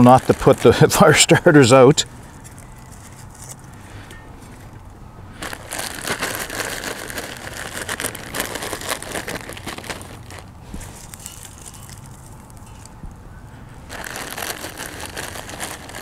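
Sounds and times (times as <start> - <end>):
plastic bag crinkling: 0.0 - 1.8, 5.4 - 13.0, 13.8 - 16.0.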